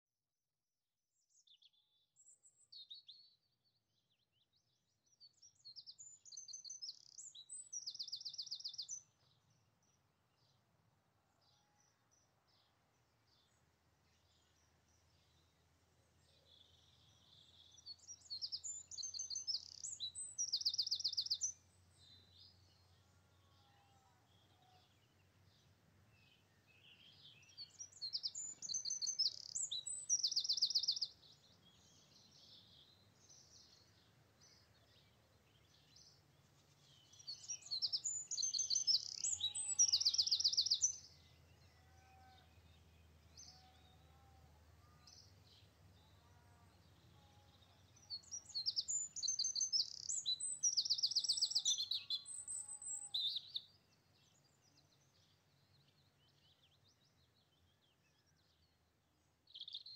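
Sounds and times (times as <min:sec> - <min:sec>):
songbird twittering and trilling: 0:05.2 - 0:09.2, 0:16.5 - 0:23.0, 0:24.4 - 0:44.1, 0:46.8 - 0:59.9.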